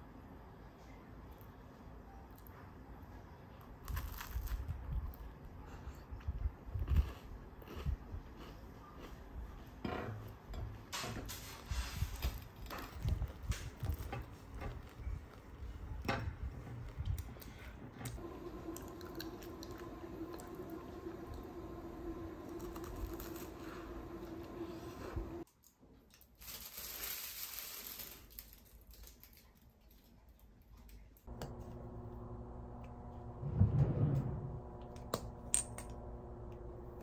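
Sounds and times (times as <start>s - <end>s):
steady low hum: 18.1s - 25.4s, 31.3s - 37.0s
pastry crust crackling: 18.3s - 25.4s.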